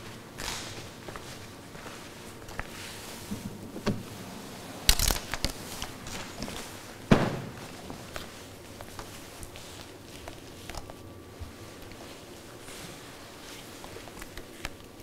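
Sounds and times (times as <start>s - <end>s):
fabric rustling: 0.0s - 15.0s
shuffling steps: 0.0s - 15.0s.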